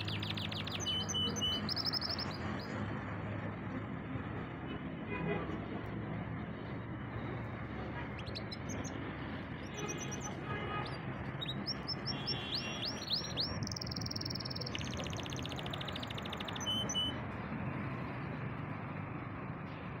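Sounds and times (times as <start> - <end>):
canary singing: 0.0 - 2.8, 8.0 - 17.2.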